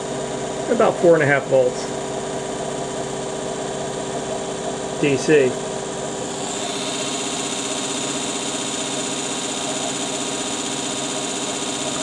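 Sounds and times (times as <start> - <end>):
electric motor whirring: 6.2 - 12.0.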